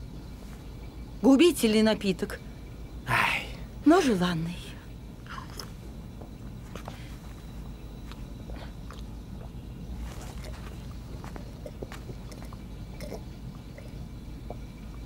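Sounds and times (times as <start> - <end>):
steady low hum: 0.0 - 15.0
sipping and chewing: 8.1 - 15.0.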